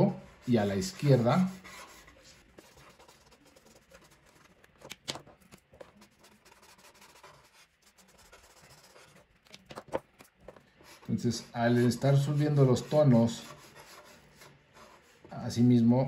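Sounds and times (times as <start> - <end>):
felt-tip marker rubbing paper: 0.8 - 9.3, 9.9 - 15.2.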